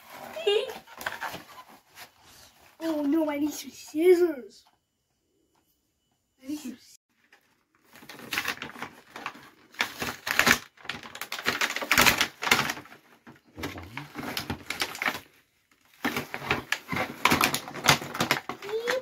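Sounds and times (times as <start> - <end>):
plastic packaging crinkling: 7.2 - 19.0.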